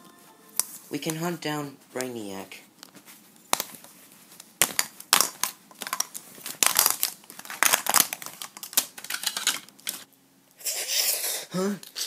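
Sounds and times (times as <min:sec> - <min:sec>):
plastic toys clicking and clacking: 0:04.8 - 0:10.1.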